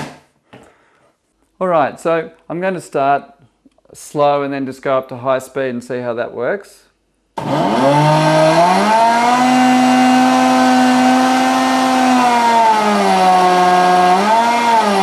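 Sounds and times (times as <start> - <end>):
blender motor running: 7.4 - 15.0.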